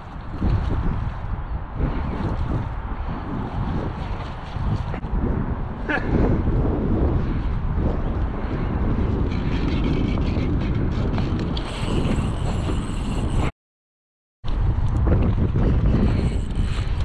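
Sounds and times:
wind rumbling on microphone: 0.0s - 13.5s, 14.4s - 17.0s
fishing reel cranking: 11.4s - 13.5s, 15.9s - 17.0s.

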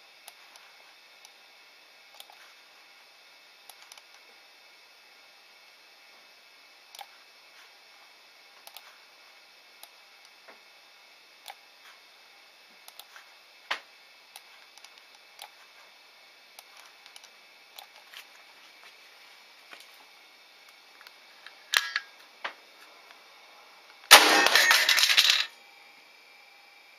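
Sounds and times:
air rifle firing loud burst: 24.1s - 25.2s.

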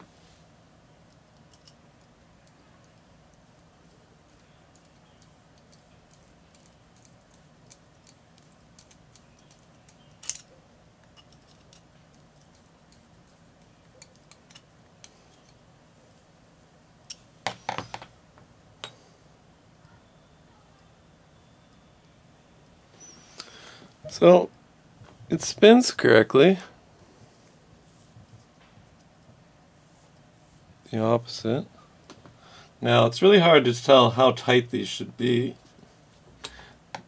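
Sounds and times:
small parts clicking: 1.0s - 15.6s.

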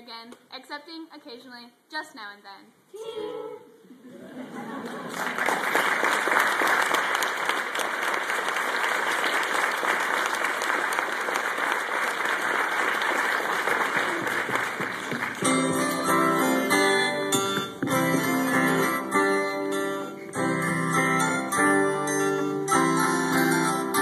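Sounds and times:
audience applauding: 4.8s - 16.6s
music: 15.4s - 24.0s.

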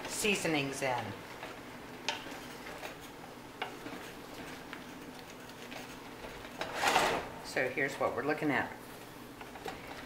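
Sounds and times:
wooden spoon stirring vegetables: 0.0s - 6.7s.

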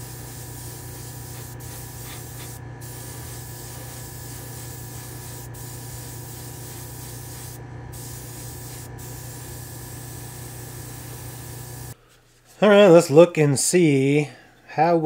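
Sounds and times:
spray gun hissing: 0.0s - 12.0s
steady low hum: 0.0s - 12.4s.

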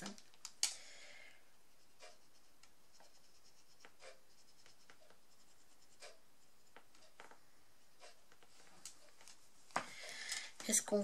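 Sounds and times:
brush pen strokes on card: 1.5s - 7.1s.

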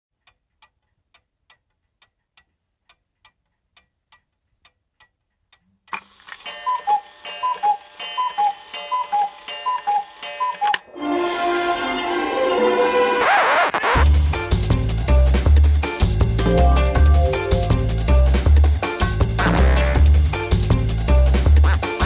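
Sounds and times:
clock ticking: 0.2s - 6.0s
jingle music with chiming figure: 10.9s - 13.2s, 16.3s - 18.8s.

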